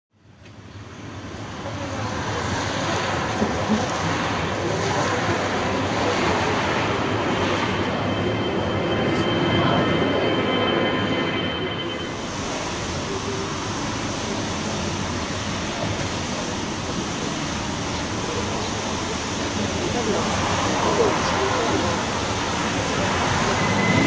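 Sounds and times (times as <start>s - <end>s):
jet engine roar: 0.2s - 24.0s
thin steady whine: 0.2s - 24.0s.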